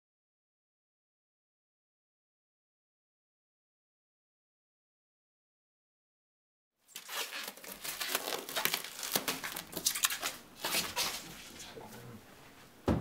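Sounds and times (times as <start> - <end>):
plastic stretch wrap crackling: 6.9 - 11.7.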